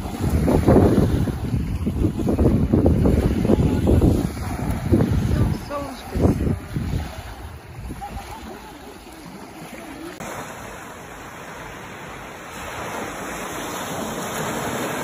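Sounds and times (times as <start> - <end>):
wind buffeting microphone: 0.0 - 10.3
small waves washing on beach: 0.0 - 15.0
wind over choppy water: 0.0 - 15.0.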